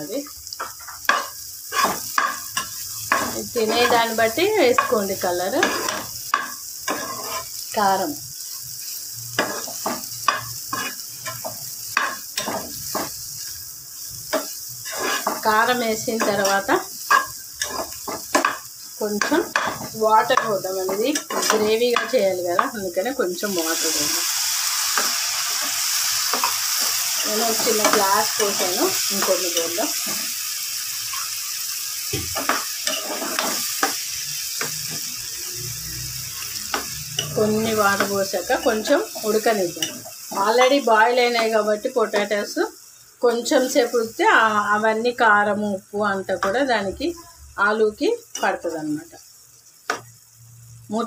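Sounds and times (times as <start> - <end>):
sizzle of frying in oil: 0.0 - 51.0
spatula scraping potatoes in pan: 0.6 - 7.7, 8.9 - 22.8, 32.4 - 35.2.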